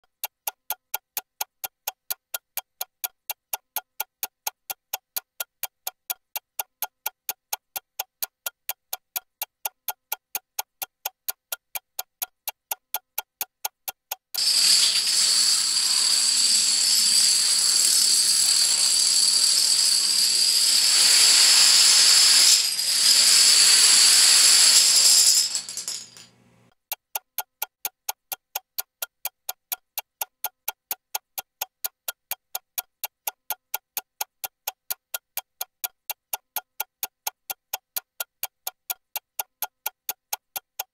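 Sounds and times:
rapid clock-like ticking: 0:00.0 - 0:26.0, 0:26.7 - 0:40.9
dominoes toppling: 0:14.4 - 0:18.5, 0:20.4 - 0:26.3.

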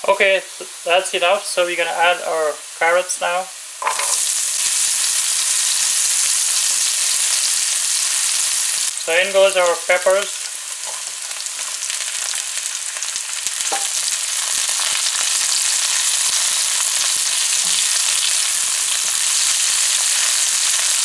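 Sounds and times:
vegetables sizzling in hot oil: 0:00.0 - 0:21.0.

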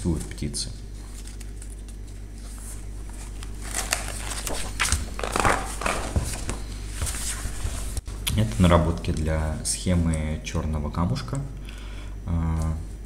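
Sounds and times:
low steady hum: 0:00.0 - 0:13.0
paper pages rustling: 0:01.0 - 0:09.3.

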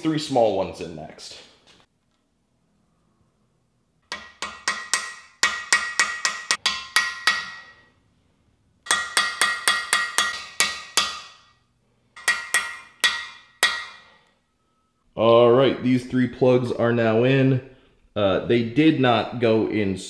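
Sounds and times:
ringing hammer blows on metal: 0:04.1 - 0:08.0, 0:08.9 - 0:11.6, 0:12.2 - 0:14.2.

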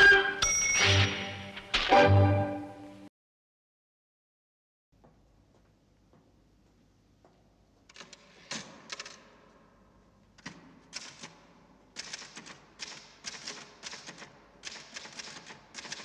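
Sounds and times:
typewriter keys clacking: 0:10.4 - 0:11.4, 0:12.0 - 0:16.0.

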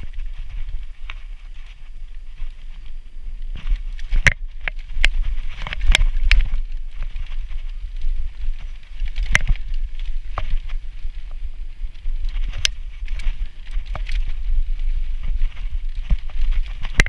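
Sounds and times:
bike rattling over bumps: 0:00.0 - 0:17.0
wind and tyres rumbling: 0:00.0 - 0:17.0.

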